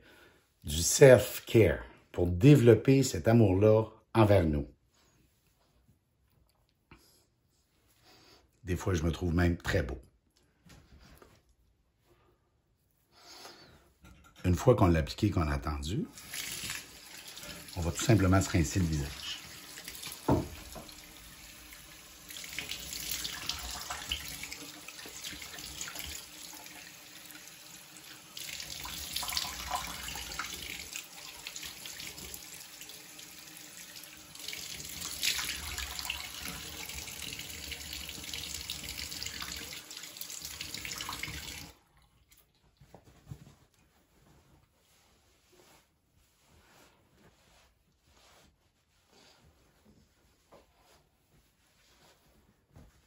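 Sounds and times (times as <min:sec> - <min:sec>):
sink tap running: 0:16.2 - 0:41.8.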